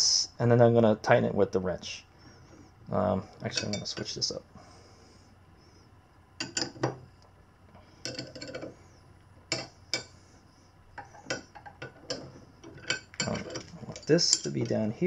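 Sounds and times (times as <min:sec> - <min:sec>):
metal wrenches clinking: 0:11.3 - 0:14.8.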